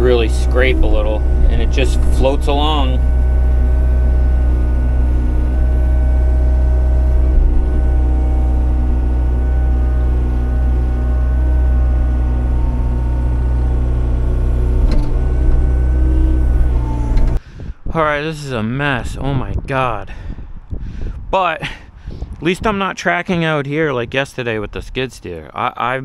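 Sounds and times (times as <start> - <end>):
excavator diesel engine and hydraulics: 0.0 - 17.4.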